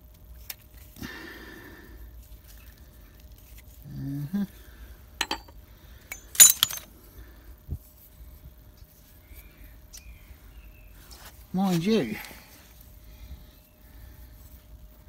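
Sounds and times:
metal parts clinking: 0:05.2 - 0:05.5, 0:06.1 - 0:06.8.

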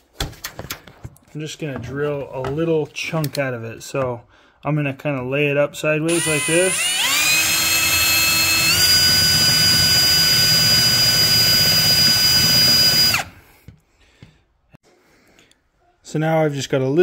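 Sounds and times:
drill bit grinding plastic: 0:06.1 - 0:13.4
electric drill motor whine: 0:06.1 - 0:13.4.

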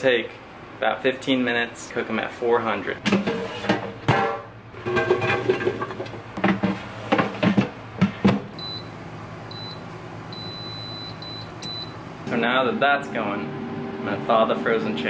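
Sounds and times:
low steady hum: 0:07.6 - 0:15.0
control panel beeping: 0:10.4 - 0:12.0.

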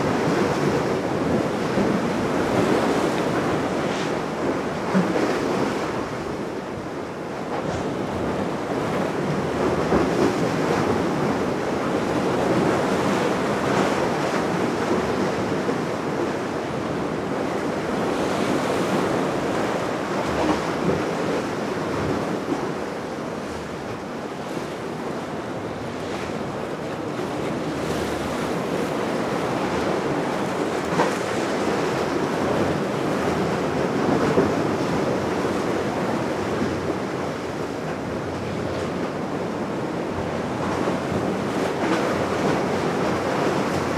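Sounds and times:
sea water rushing: 0:00.0 - 0:43.9.

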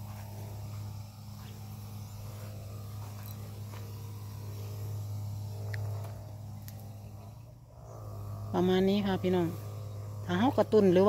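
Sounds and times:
sprayer pump humming: 0:00.0 - 0:11.0
faint ticks: 0:05.6 - 0:06.8.

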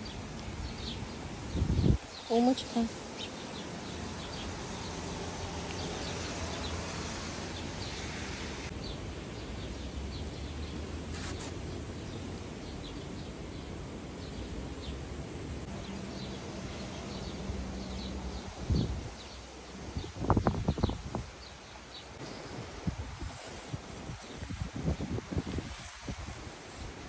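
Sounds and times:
small birds chirping: 0:00.0 - 0:15.0, 0:15.6 - 0:22.2.

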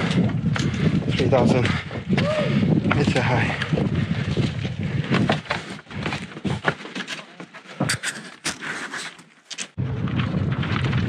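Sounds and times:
wind buffeting microphone: 0:00.0 - 0:06.6, 0:09.8 - 0:11.0
footsteps and gear on rock: 0:00.0 - 0:11.0.

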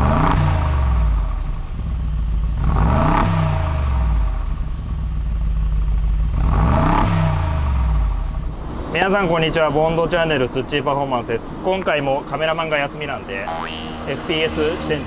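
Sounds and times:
car engine revving: 0:00.0 - 0:01.8, 0:02.5 - 0:04.5, 0:06.3 - 0:08.9.

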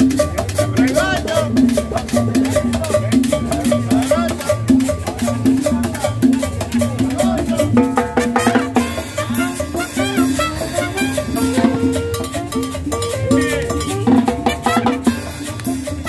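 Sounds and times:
drums: 0:00.0 - 0:16.0
upright bass: 0:00.0 - 0:16.0
saxophone: 0:08.2 - 0:16.0.

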